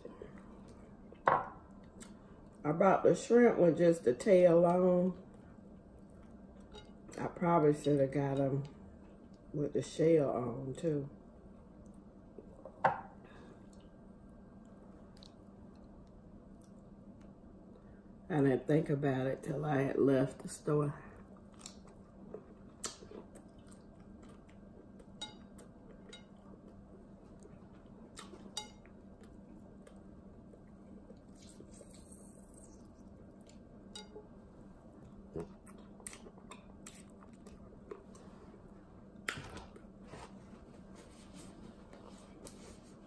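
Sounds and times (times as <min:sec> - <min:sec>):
low steady hum: 0:00.0 - 0:43.0
faint chewing: 0:14.6 - 0:17.8, 0:21.2 - 0:34.3, 0:34.9 - 0:39.9.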